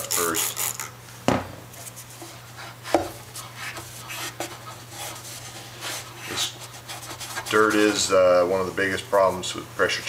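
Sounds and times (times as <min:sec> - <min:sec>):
rag rubbing on metal: 0:00.0 - 0:00.9, 0:02.1 - 0:08.3.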